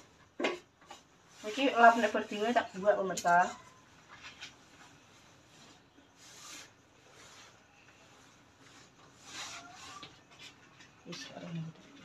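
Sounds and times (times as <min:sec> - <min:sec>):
cloth wiping stove top: 0:01.2 - 0:03.5, 0:04.2 - 0:10.6.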